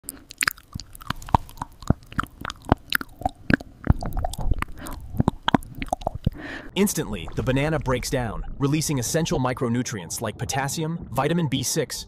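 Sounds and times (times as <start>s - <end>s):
chewing banana mouth clicks: 0.0s - 6.4s.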